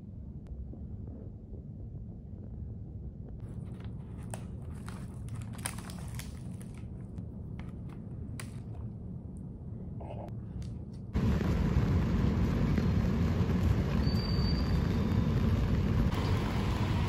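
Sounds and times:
low room hum: 0.0s - 17.0s
paper bag crinkling: 3.4s - 8.0s.

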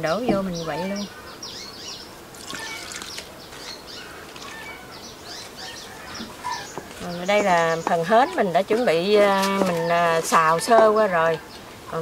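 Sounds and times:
birds chirping: 0.0s - 12.0s
liquid pouring into bowl: 2.3s - 3.2s.

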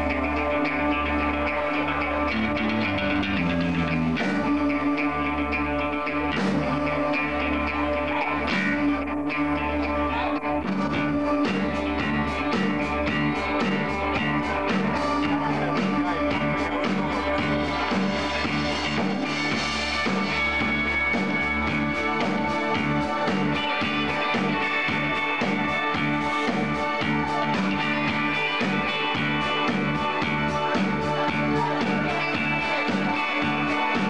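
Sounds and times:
bass guitar: 0.0s - 34.0s
electric guitar: 0.0s - 34.0s
drum kit beat: 10.6s - 34.0s.

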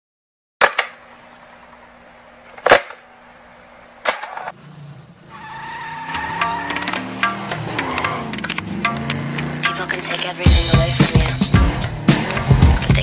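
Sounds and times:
sharp cracks: 2.5s - 3.1s, 6.1s - 10.4s
car passing fast: 4.5s - 12.9s.

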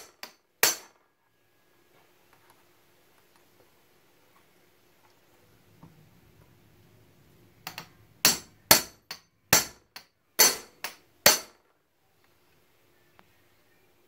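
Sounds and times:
hammer striking metal chisel: 0.0s - 1.0s, 7.7s - 11.6s.

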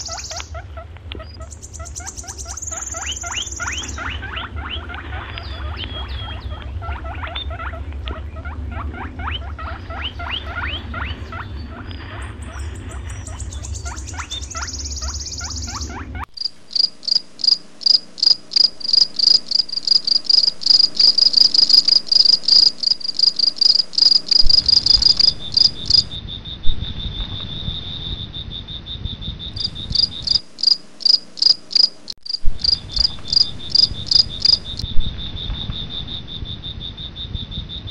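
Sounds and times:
steady cricket trill: 0.0s - 7.8s, 8.4s - 37.9s
low rumble: 0.0s - 16.3s, 23.8s - 30.5s
high squeaky chirping calls: 0.0s - 26.2s, 29.6s - 34.8s
crickets chirping in pulses: 0.0s - 37.9s.

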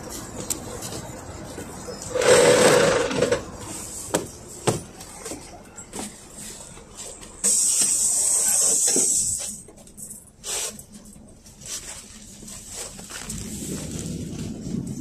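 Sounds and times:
steady air hiss: 7.4s - 9.6s.

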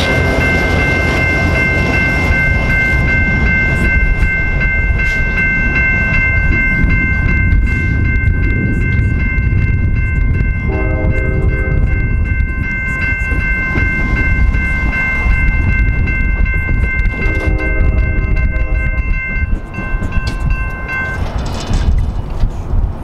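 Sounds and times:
train horn: 0.0s - 0.5s, 10.6s - 12.1s, 17.1s - 19.2s
railroad crossing bell ringing: 0.0s - 22.6s
train rumbling: 0.0s - 23.0s.

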